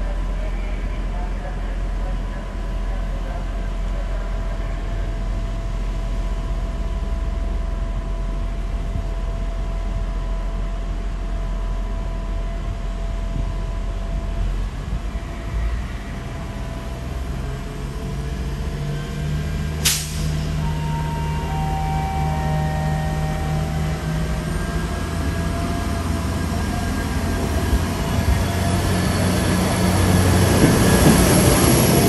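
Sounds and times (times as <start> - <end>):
diesel train engine drone: 0.0 - 32.0
air hiss: 19.8 - 20.5.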